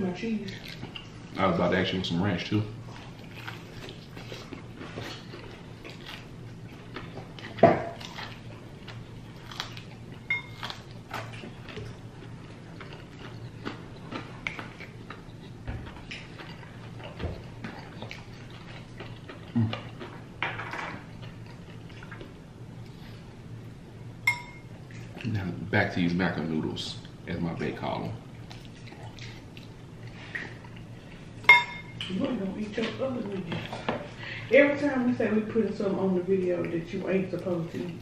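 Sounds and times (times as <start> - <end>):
chewing and smacking: 0.4 - 1.4, 2.7 - 23.0, 28.2 - 34.1
utensils clinking on dishes: 10.3 - 10.7, 24.3 - 24.7, 31.4 - 32.2.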